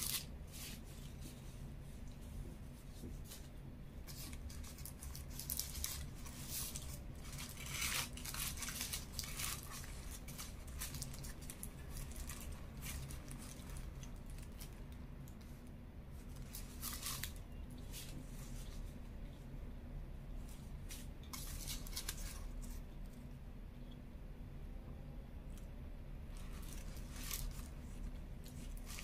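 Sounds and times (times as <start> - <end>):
paper wrapper crinkling: 0.0 - 0.8, 4.1 - 14.9, 16.2 - 18.8, 20.9 - 22.8, 26.3 - 29.0.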